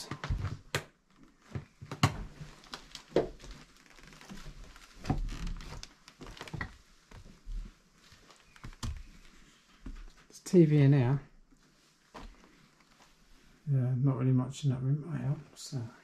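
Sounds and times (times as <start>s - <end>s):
footsteps in a room: 0.0s - 10.4s, 11.5s - 13.5s.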